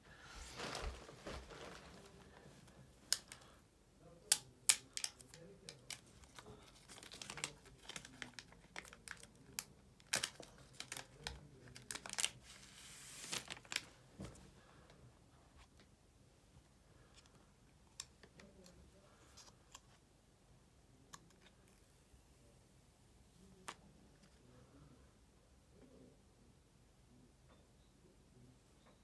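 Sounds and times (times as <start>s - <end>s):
box packaging crinkling: 6.2s - 9.3s, 10.0s - 12.4s, 13.1s - 13.9s.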